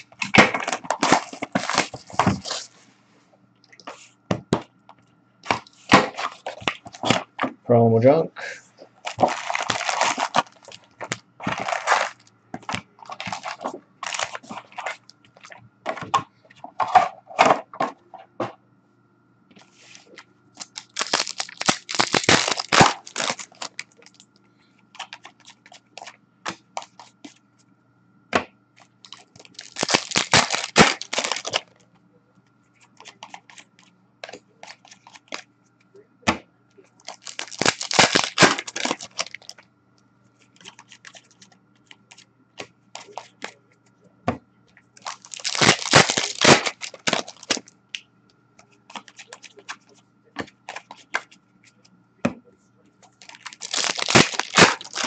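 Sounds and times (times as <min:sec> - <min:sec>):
cards shuffling: 0:00.0 - 0:02.8, 0:09.0 - 0:17.6, 0:19.6 - 0:24.2, 0:28.8 - 0:31.6, 0:37.0 - 0:39.5, 0:45.0 - 0:47.6, 0:53.2 - 0:55.0
wrappers tearing and crinkling: 0:00.0 - 0:02.8, 0:05.5 - 0:07.2, 0:09.0 - 0:15.6, 0:20.6 - 0:24.2, 0:29.0 - 0:31.8, 0:37.0 - 0:39.6, 0:40.7 - 0:41.4, 0:45.0 - 0:47.7, 0:53.2 - 0:55.0.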